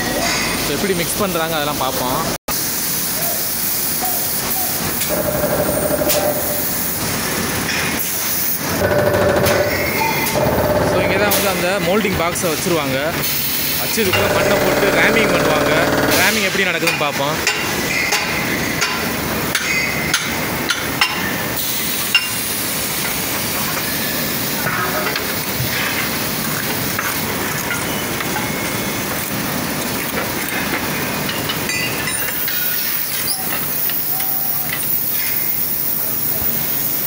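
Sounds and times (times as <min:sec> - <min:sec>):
machinery hiss: 0:02.5 - 0:17.0, 0:21.5 - 0:26.5
sharp metallic knocks: 0:08.7 - 0:11.7, 0:14.1 - 0:16.3.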